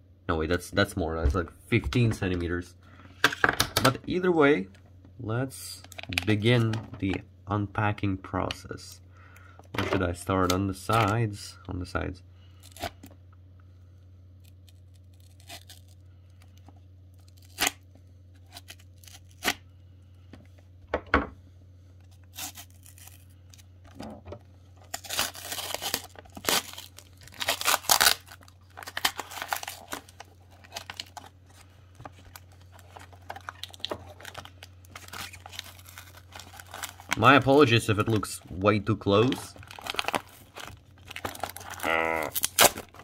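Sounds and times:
paper and tape ripping: 22.3 - 23.2, 24.9 - 31.3, 39.2 - 43.0
paper crinkling: 24.8 - 43.0.

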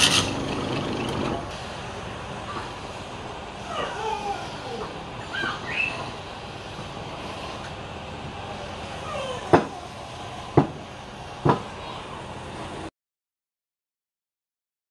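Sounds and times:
sharp knocks of wood on metal: 10.6 - 10.8, 11.4 - 11.6.

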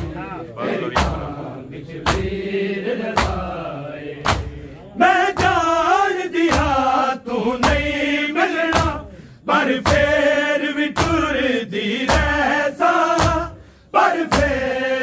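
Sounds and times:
men chanting a lament: 0.0 - 15.0
chest beating thuds: 0.9 - 1.4.

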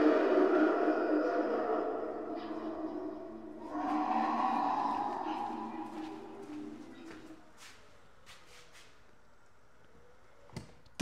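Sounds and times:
deep roaring voice from speaker: 0.0 - 6.5.

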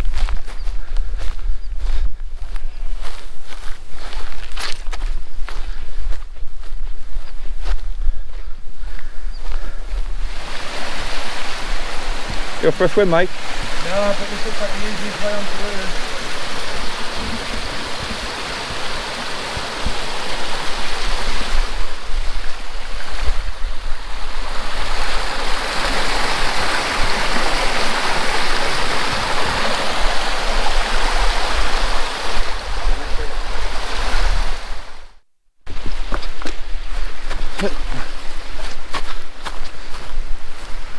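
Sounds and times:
wind buffeting microphone: 0.0 - 35.1
river water rushing: 10.2 - 35.1.

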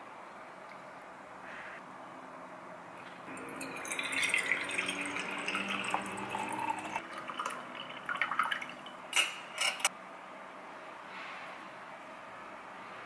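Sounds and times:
liquid pouring into glass: 3.0 - 9.4
cutlery clinking on ceramic plate: 9.1 - 9.9.

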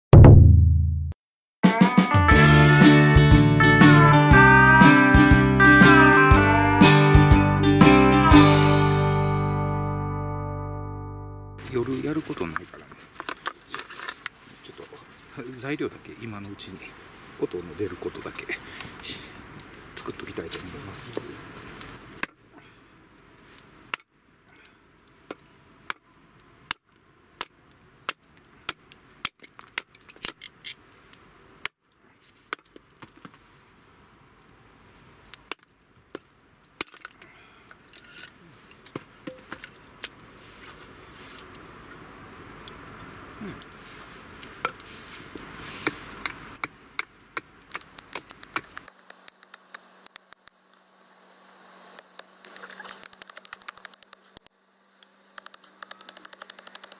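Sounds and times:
hatchet chopping wood: 55.4 - 56.9.

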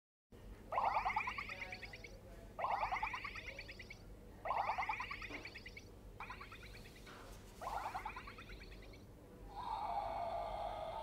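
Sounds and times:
toy dinosaur electronic calls: 0.7 - 11.0.

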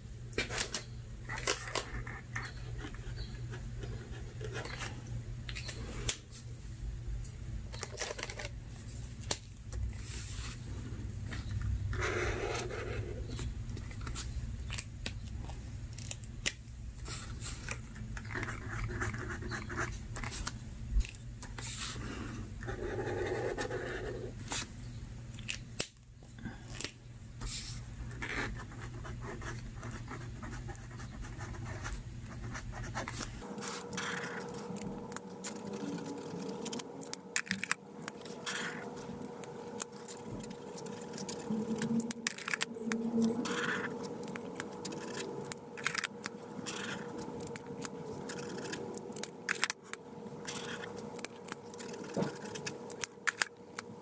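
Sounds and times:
markers scratching on paper: 11.9 - 14.3, 17.1 - 20.5, 22.6 - 24.6, 28.1 - 49.8, 50.4 - 53.5.

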